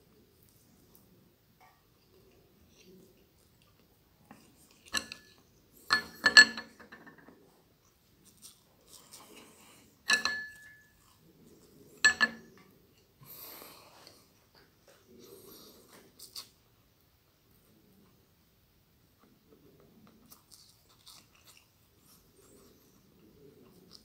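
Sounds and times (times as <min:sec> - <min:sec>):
chewing: 0:01.7 - 0:05.5, 0:07.8 - 0:13.1, 0:13.9 - 0:16.6, 0:19.2 - 0:24.0
chopsticks clinking against dishes: 0:04.8 - 0:07.2, 0:10.1 - 0:11.0, 0:12.0 - 0:12.6.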